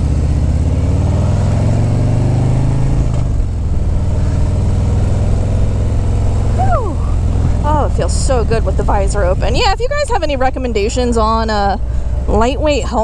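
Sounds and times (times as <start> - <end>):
motorcycle engine accelerating: 0.0 - 13.0
wind rushing past microphone: 6.5 - 12.4.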